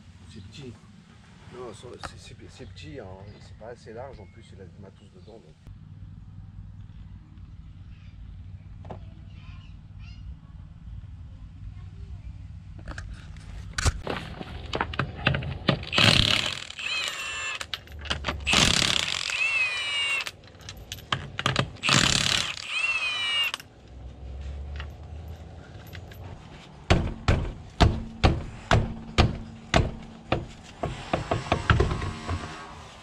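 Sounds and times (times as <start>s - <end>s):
impact wrench hammering: 15.7s - 17.6s, 18.5s - 20.3s, 21.0s - 23.6s, 26.9s - 32.4s
sharp knocks: 26.9s - 32.5s.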